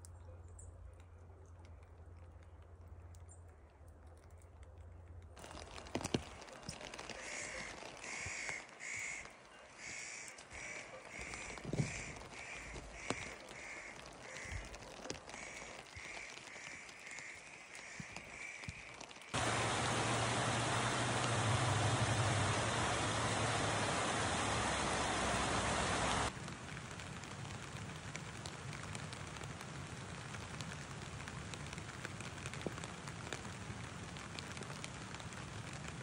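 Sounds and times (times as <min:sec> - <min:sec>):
faint rain patter and drips: 0:00.0 - 0:36.0
bird calling: 0:15.4 - 0:26.3
loud steady rushing noise: 0:19.4 - 0:26.3.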